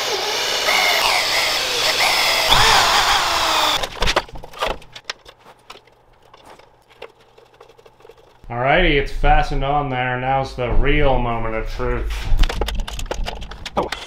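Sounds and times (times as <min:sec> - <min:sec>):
electric drill boring through steel: 0:00.0 - 0:03.8
metal parts knocking and clanking: 0:03.8 - 0:08.4, 0:12.3 - 0:14.0.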